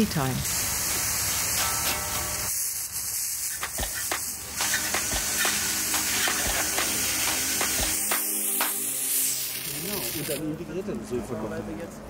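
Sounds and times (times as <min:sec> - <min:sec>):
fire hose spraying water: 0:00.0 - 0:10.4.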